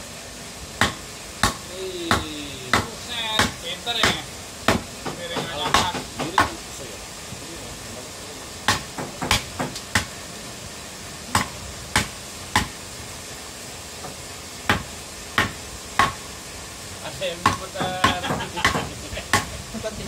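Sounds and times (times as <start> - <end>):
board knocking on knife blade: 17.4 - 19.5.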